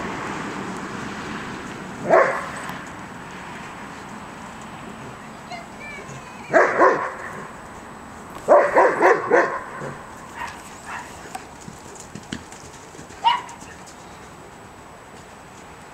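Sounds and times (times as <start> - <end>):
dog barking: 2.0 - 2.5, 6.5 - 7.5, 8.5 - 11.2, 13.2 - 13.8
dog yelping: 6.0 - 7.5, 8.5 - 11.2, 13.2 - 13.8.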